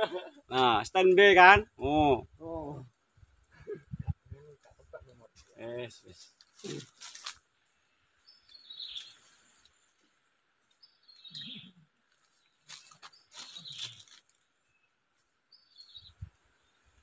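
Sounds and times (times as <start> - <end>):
bird calling: 8.2 - 9.4, 10.8 - 11.9, 12.8 - 14.1.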